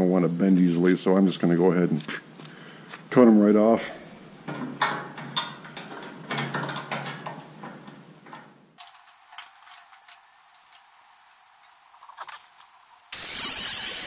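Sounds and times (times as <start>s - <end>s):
metal parts clicking and clinking: 4.8s - 10.9s.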